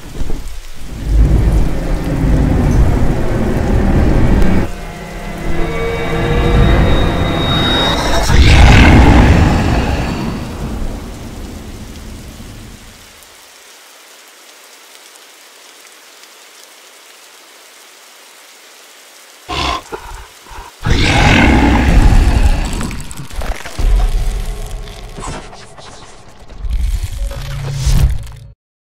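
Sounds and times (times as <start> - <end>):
faint hiss of rain: 0.0 - 28.4
deep rumble: 0.9 - 12.8, 19.9 - 27.4.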